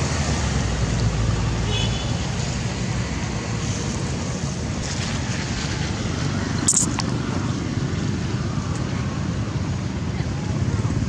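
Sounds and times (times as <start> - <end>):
sharp crackle: 6.6 - 7.1.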